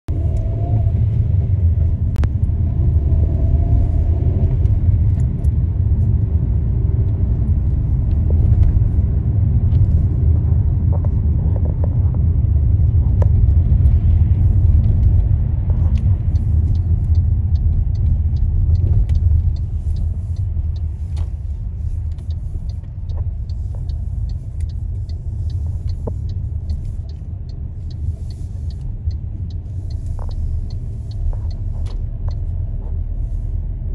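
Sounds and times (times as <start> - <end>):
car road noise rumble: 0.0 - 33.9
faint ticks: 13.1 - 33.1.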